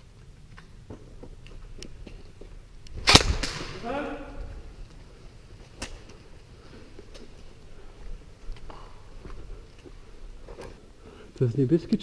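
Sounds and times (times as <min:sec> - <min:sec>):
faint clicks and steps: 0:00.0 - 0:03.7, 0:04.4 - 0:12.0
smaller crack: 0:02.8 - 0:04.3, 0:05.6 - 0:06.2
loud sharp crack echoing: 0:03.0 - 0:04.4.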